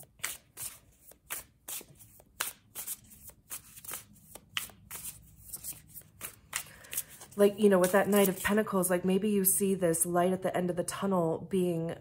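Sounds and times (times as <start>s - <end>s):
cards being shuffled by hand: 0.0s - 8.6s.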